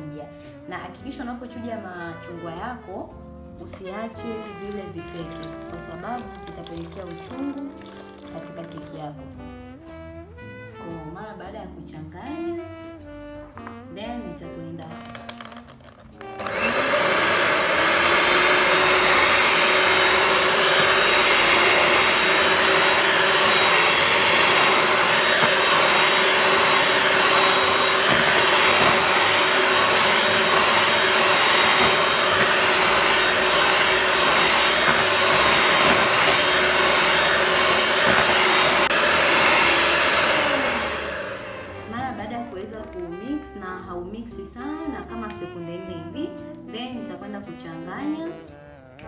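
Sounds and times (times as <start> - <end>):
electric hand mixer running: 4.0 - 9.1, 15.1 - 42.6.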